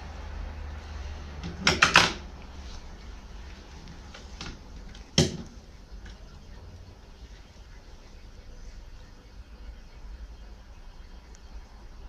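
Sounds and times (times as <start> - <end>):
low steady hum: 0.0 - 12.0
sharp knocks: 1.4 - 2.3, 5.2 - 5.6.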